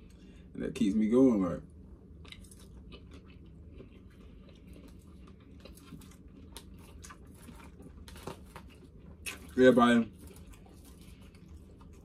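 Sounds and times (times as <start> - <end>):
person chewing food: 2.0 - 12.0.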